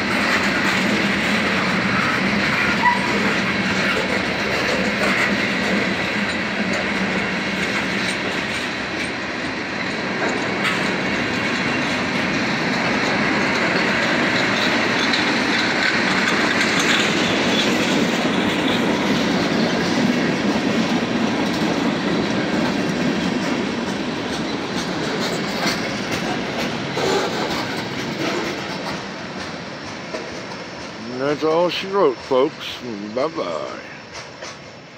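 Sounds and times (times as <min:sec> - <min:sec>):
freight train wheels rumbling on rails: 0:00.0 - 0:34.9.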